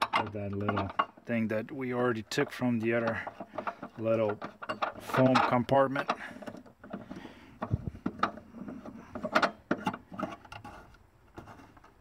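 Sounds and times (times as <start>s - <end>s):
screw turning clicks and knocks: 3.0s - 10.8s.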